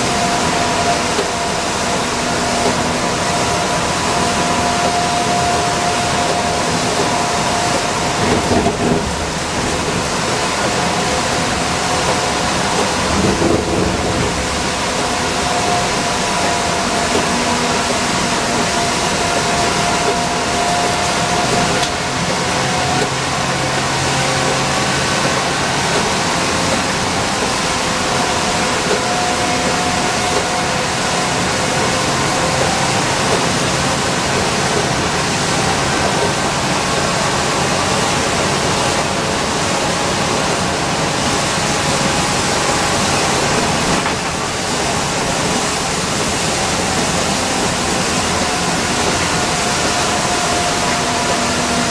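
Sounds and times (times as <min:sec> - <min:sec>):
drivetrain whine: 0:00.0 - 0:51.9
low bumps: 0:08.2 - 0:18.0.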